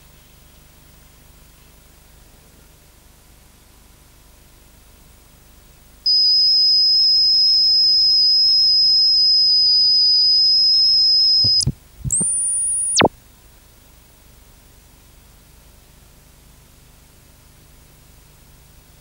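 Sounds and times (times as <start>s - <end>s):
high-pitched electronic sine tone: 6.1s - 13.1s.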